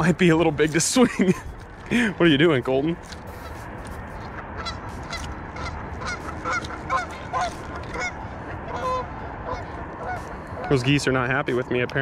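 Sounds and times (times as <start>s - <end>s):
geese honking: 3.2s - 10.9s.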